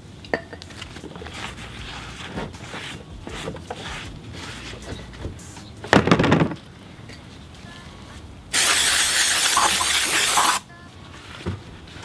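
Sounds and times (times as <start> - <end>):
aerosol spray hissing: 8.5 - 10.6.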